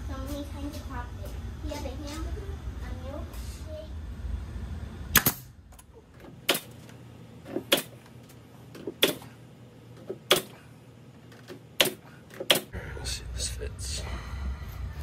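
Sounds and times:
nail gun shots: 5.1 - 5.5, 7.7 - 8.0, 9.0 - 9.2, 10.2 - 10.6, 11.8 - 12.7.

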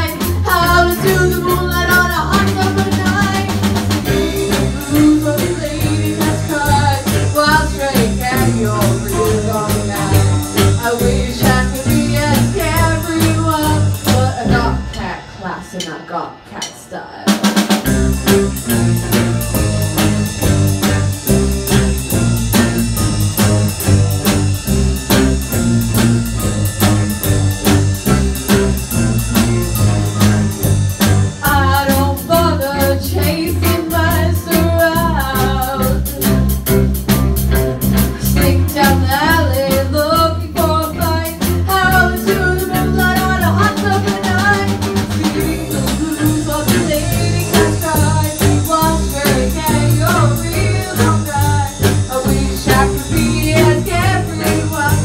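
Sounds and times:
girl singing lead vocal: 0.0 - 17.1, 31.4 - 36.2, 38.4 - 55.0
live rock band playing: 0.0 - 55.0.

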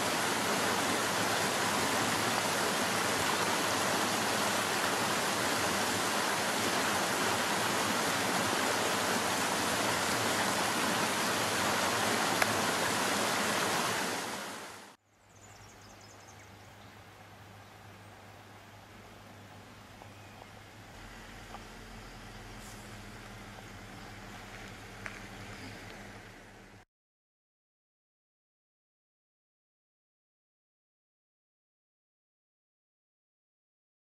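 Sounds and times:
creek water rushing over rocks: 0.0 - 15.0
faint hiss with low hum: 0.0 - 26.8.

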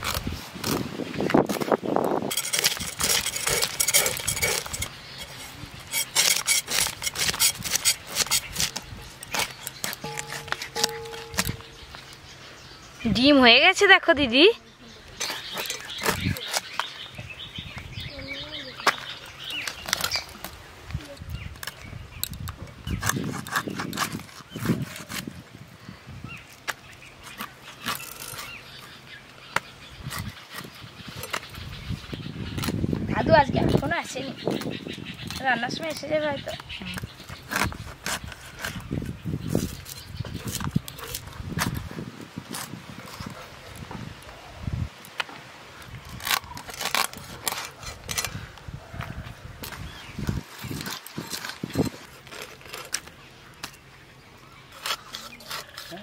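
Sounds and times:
fish scales being scraped: 2.3 - 11.7, 54.7 - 56.0.

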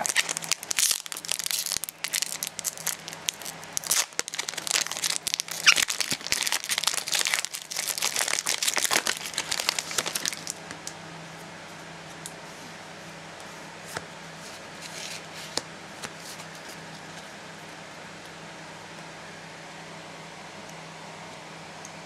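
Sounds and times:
foil wrapper crinkling: 0.0 - 10.6.

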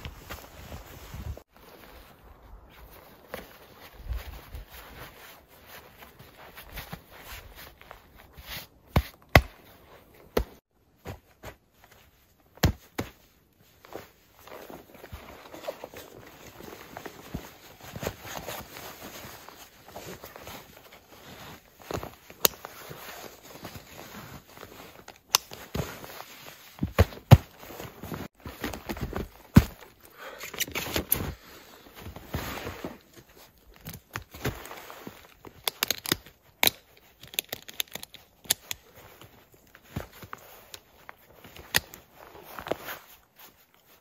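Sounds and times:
strap and buckle clicks: 22.3 - 22.8, 25.1 - 25.8, 35.2 - 39.3.

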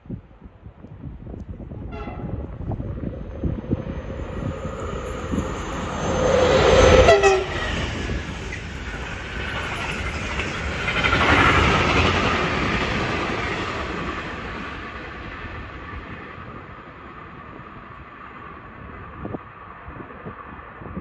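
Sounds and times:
freight train wagons rolling: 3.1 - 15.0.

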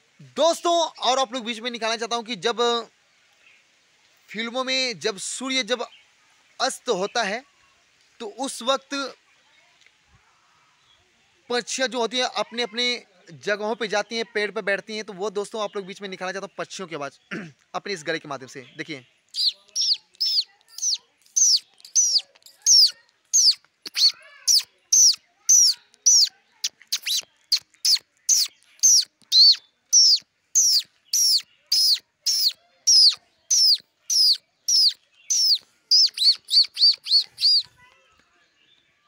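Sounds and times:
man imitating birdsong chirps: 18.8 - 37.8.

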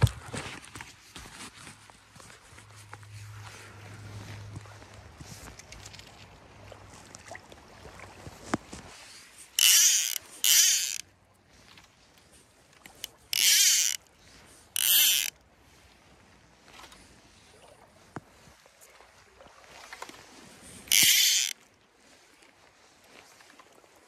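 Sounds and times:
fly reel ratchet buzzing: 9.6 - 11.0, 13.3 - 14.0, 14.8 - 15.3, 20.9 - 21.5.

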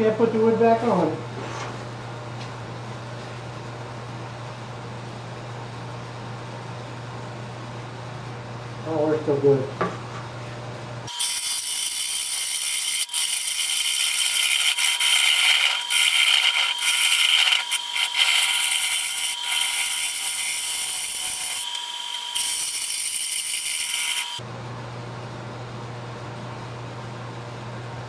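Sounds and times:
gouge scraping wood on lathe: 11.2 - 24.4.

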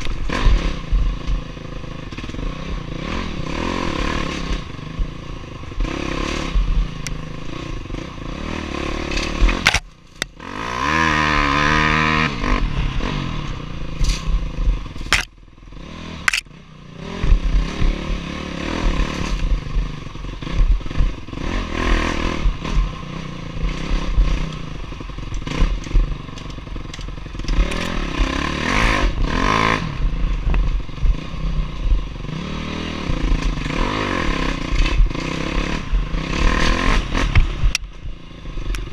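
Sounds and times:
dirt bike engine revving: 0.0 - 38.9
sharp knocks from bike: 9.1 - 10.4, 15.0 - 15.4.

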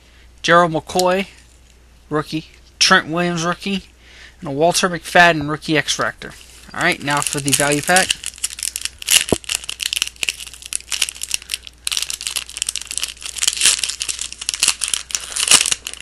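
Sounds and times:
wrapper crinkling and tearing: 6.5 - 16.0.

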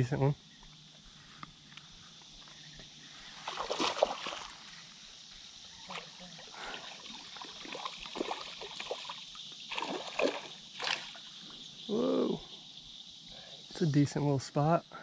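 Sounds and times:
steady high hiss: 0.0 - 8.4, 10.5 - 15.0
creek water splashing: 2.2 - 11.7.

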